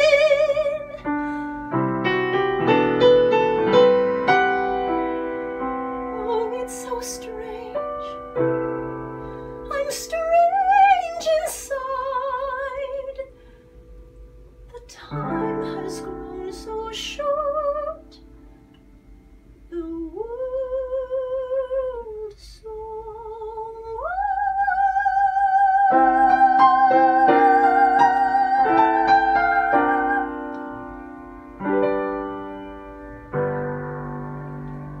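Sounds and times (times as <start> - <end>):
woman singing operatically: 0.0 - 1.2, 6.1 - 8.2, 9.7 - 13.3, 14.7 - 18.2, 19.7 - 30.5
piano chords: 0.0 - 21.8, 24.3 - 35.0.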